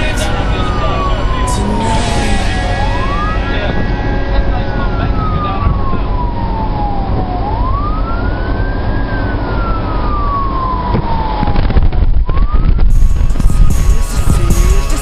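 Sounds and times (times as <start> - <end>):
engine and road rumble: 0.0 - 15.0
fire truck siren wailing: 0.0 - 15.0.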